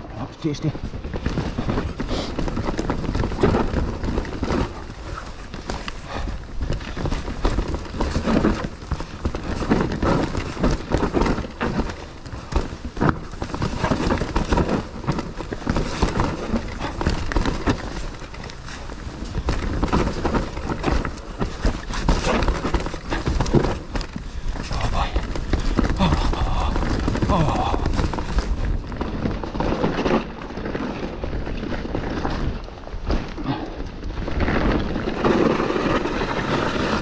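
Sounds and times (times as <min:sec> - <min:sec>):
bike clattering and knocking: 0:00.0 - 0:37.0
bike tyres rolling over dirt: 0:00.0 - 0:37.0.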